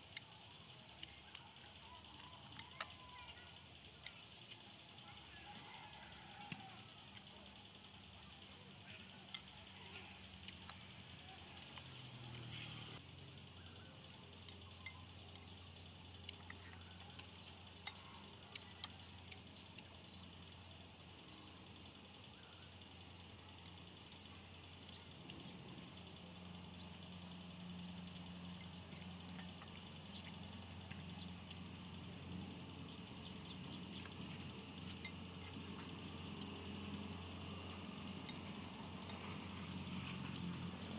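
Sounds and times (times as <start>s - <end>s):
faint background hum: 0.0s - 40.9s
chopsticks clicking on ceramic bowl: 0.1s - 3.4s.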